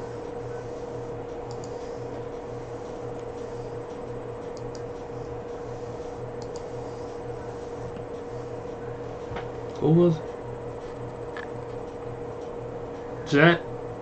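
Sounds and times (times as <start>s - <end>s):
electrical hum: 0.0s - 14.0s
pulsing low hum: 0.0s - 14.0s
mouse clicks: 1.5s - 1.8s, 6.4s - 6.7s.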